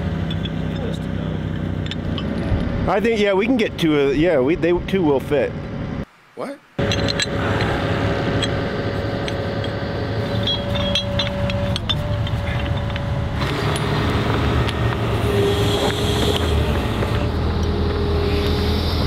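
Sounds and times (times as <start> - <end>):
metal chain clinking: 6.8 - 8.6, 9.2 - 14.1
excavator diesel engine running: 6.8 - 19.0.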